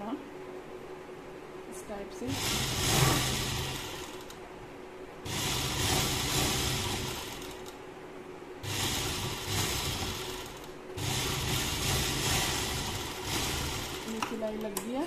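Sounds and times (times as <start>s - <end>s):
sewing machine running: 2.3s - 4.4s, 5.2s - 7.7s, 8.6s - 14.6s.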